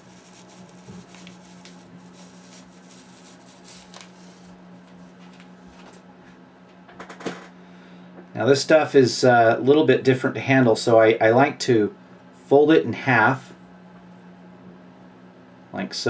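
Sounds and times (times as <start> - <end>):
ice fiber rustling and crackling: 0.0 - 4.6
steady low hum: 0.0 - 16.0.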